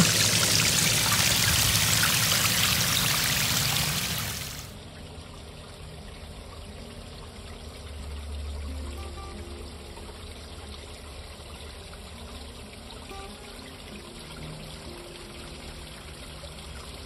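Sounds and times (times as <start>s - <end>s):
water splashing over rocks: 0.0s - 4.7s.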